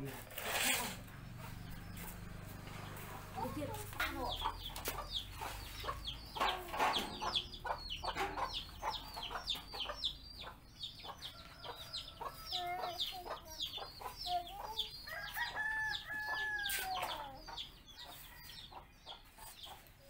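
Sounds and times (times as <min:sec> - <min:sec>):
chickens clucking: 0:00.5 - 0:20.0
chicks peeping: 0:00.9 - 0:20.0
rooster crowing: 0:15.1 - 0:16.8.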